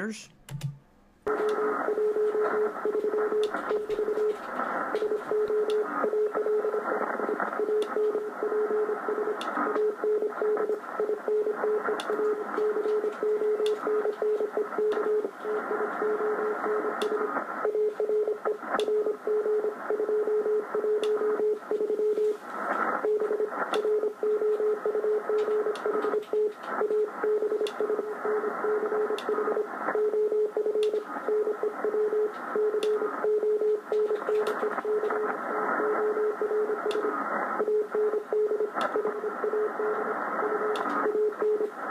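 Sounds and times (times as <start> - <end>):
static clicks: 0.5 - 41.9
receiver hiss: 1.3 - 41.9
morse code beeps: 26.4 - 34.2.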